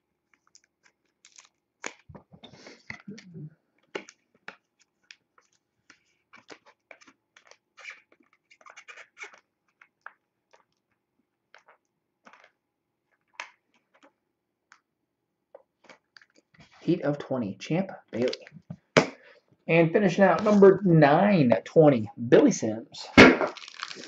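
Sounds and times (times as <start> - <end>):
cards and plastic holders being handled: 0.1 - 14.9, 15.5 - 16.9.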